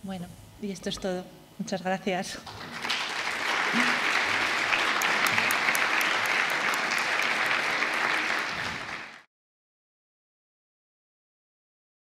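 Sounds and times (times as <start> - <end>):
audience applauding: 2.4 - 9.3.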